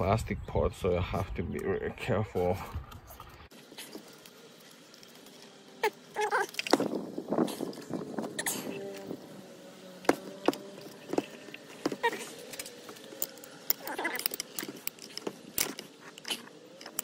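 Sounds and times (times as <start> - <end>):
metal parts clinking on workbench: 12.4 - 17.0.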